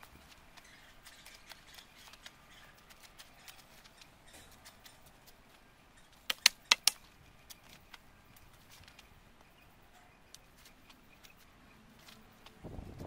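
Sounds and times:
sharp clicks: 6.1s - 7.1s.

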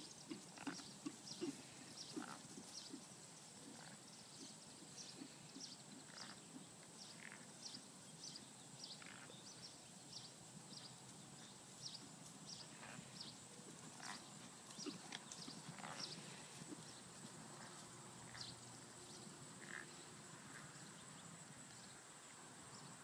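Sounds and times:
horse hoofbeats on grass: 0.0s - 7.4s, 10.8s - 18.9s.

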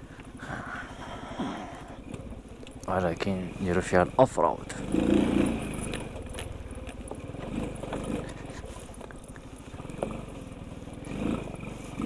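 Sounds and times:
moped engine running: 1.4s - 12.0s
knocks and rattles: 5.0s - 10.6s.

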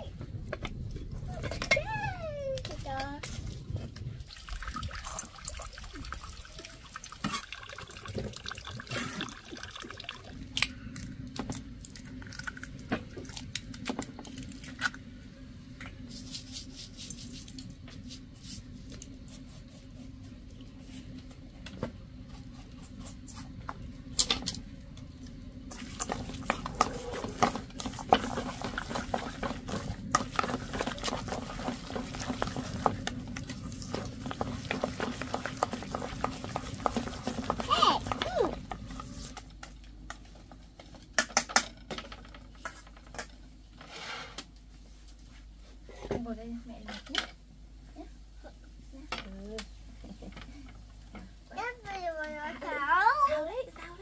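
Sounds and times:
steady low hum: 0.0s - 7.7s, 8.4s - 54.0s
water splashing and dripping: 4.2s - 10.5s.

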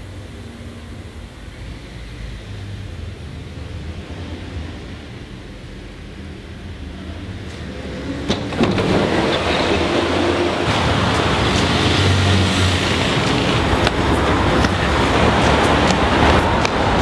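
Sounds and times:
traffic rumble: 0.0s - 17.0s.

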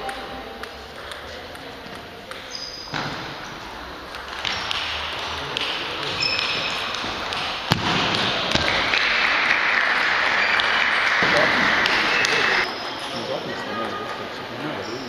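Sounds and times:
distant ball clicks: 4.1s - 12.4s.

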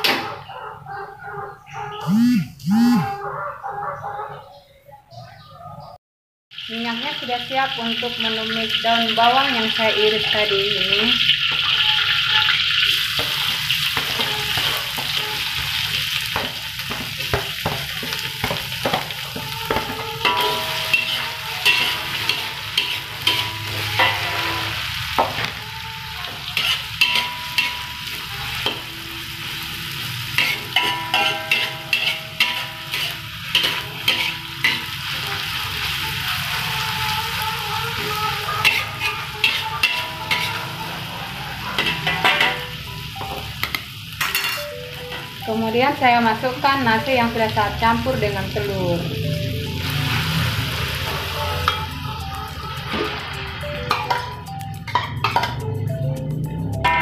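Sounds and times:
onions sizzling in hot oil: 6.5s - 54.7s
metal spatula scraping a wok: 12.8s - 42.8s.

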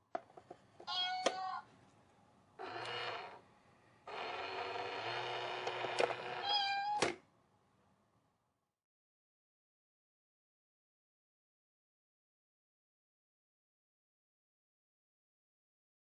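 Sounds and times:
recorded cat meowing: 0.8s - 1.7s, 6.4s - 7.1s
toy mechanism humming: 2.6s - 3.4s, 4.1s - 7.2s.

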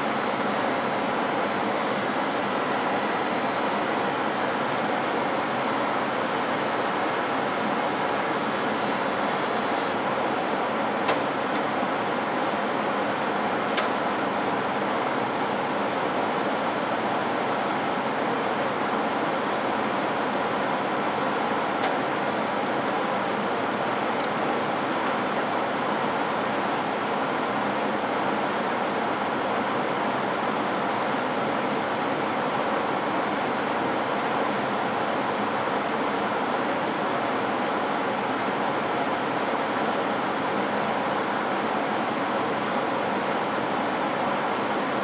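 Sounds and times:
cabinet blower rushing: 0.0s - 10.0s.

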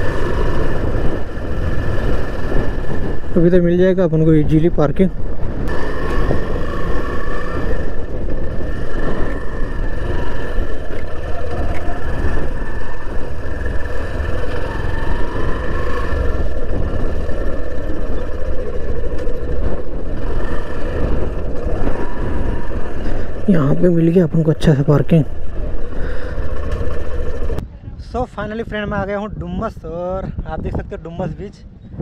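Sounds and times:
motorbike engine running: 0.0s - 4.4s, 5.1s - 27.6s
wind and road noise: 0.0s - 32.0s.

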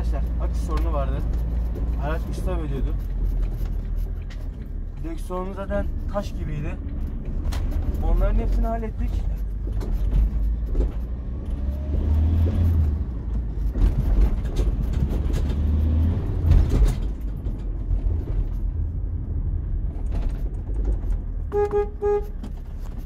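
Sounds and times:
van engine droning: 0.0s - 23.0s.

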